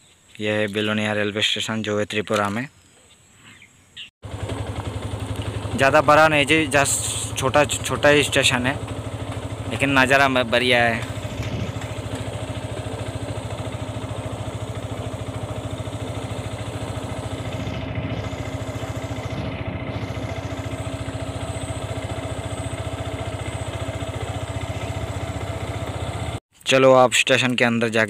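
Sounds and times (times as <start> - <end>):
small engine idling: 4.2 - 26.4.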